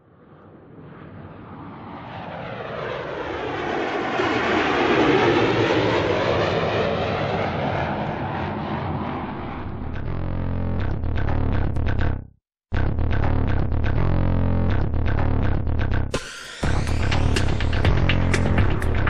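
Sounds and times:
aircraft flying by: 0.0 - 10.7.

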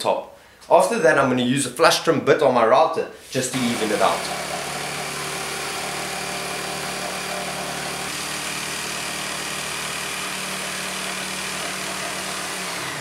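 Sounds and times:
jigsaw sawing through wood: 3.5 - 13.0.

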